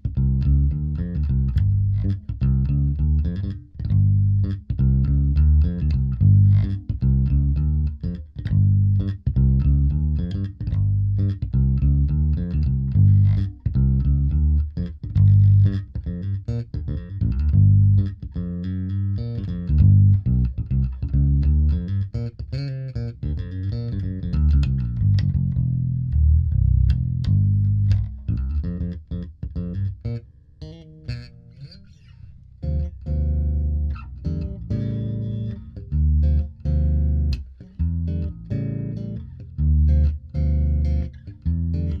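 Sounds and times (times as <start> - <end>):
electric bass guitar plucked: 0.0 - 42.0.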